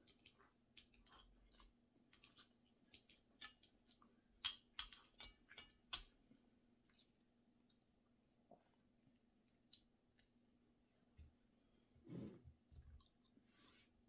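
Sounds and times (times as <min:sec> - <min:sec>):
person chewing: 0:00.0 - 0:06.1, 0:06.8 - 0:07.9, 0:09.4 - 0:10.3
soft mouth clicks and smacks: 0:06.9 - 0:07.9, 0:09.4 - 0:10.3.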